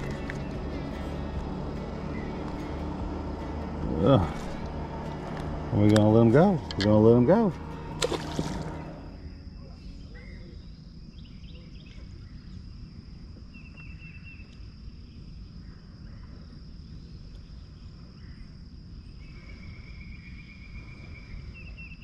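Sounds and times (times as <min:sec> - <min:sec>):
bird chirping: 0:00.0 - 0:12.7
low steady rumble: 0:00.0 - 0:13.3.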